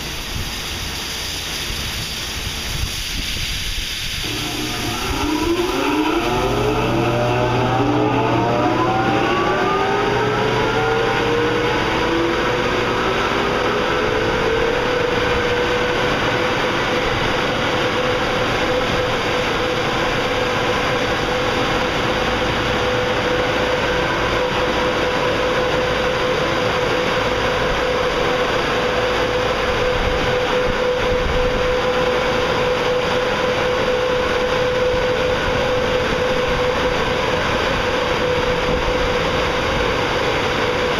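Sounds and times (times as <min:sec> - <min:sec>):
rush of air: 0:00.0 - 0:32.7
air dryers whining: 0:03.7 - 0:40.9.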